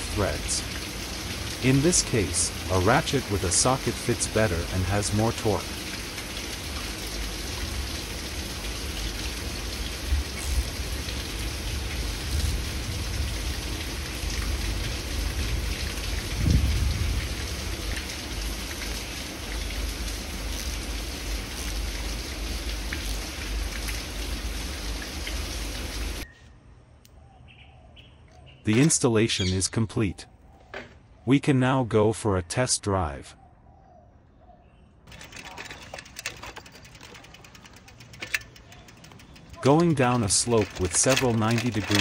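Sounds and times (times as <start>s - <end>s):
steady rain falling: 0.0s - 26.2s, 35.1s - 42.0s
faint clicks: 35.1s - 42.0s.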